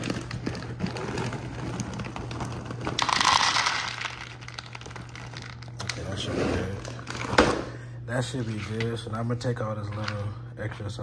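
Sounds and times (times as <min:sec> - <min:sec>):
bag crinkling: 0:00.0 - 0:05.9
kibble clattering into plastic bowl: 0:00.0 - 0:06.0.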